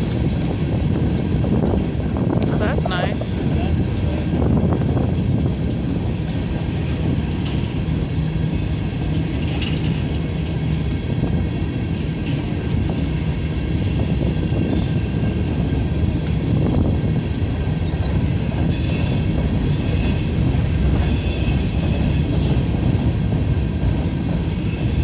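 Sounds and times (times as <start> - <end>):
train wheels rumbling on rails: 0.0 - 25.0
high wheel squeal: 8.4 - 9.8, 18.7 - 22.4, 24.5 - 25.0.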